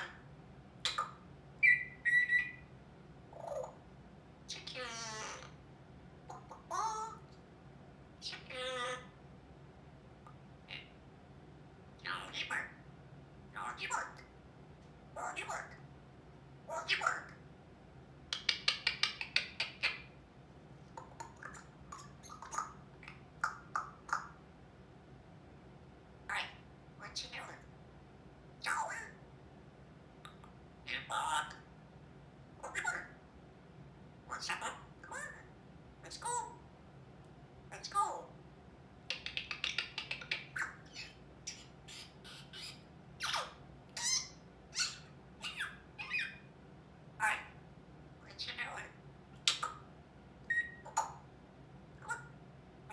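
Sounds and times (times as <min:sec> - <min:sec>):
parrot squawks: 0:00.0 - 0:02.7, 0:03.3 - 0:03.8, 0:04.5 - 0:05.6, 0:06.3 - 0:07.2, 0:08.2 - 0:09.2, 0:10.7 - 0:11.0, 0:12.0 - 0:12.8, 0:13.6 - 0:14.3, 0:15.2 - 0:15.8, 0:16.7 - 0:17.4, 0:18.4 - 0:20.2, 0:21.0 - 0:24.4, 0:26.3 - 0:27.6, 0:28.6 - 0:29.2, 0:30.8 - 0:31.6, 0:32.6 - 0:33.2, 0:34.3 - 0:36.6, 0:39.1 - 0:46.5, 0:47.2 - 0:47.6, 0:48.3 - 0:51.3, 0:52.0 - 0:52.9
parrot whistling: 0:00.8 - 0:02.7, 0:39.1 - 0:46.5, 0:50.5 - 0:51.2
parrot clicks and chirps: 0:18.3 - 0:20.0, 0:39.1 - 0:40.6.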